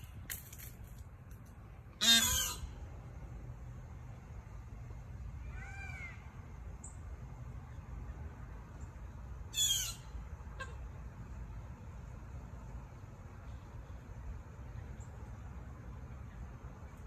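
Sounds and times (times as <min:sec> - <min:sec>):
steady low rumble: 0:00.0 - 0:17.0
birds alarm calling: 0:02.0 - 0:02.8, 0:09.5 - 0:10.8.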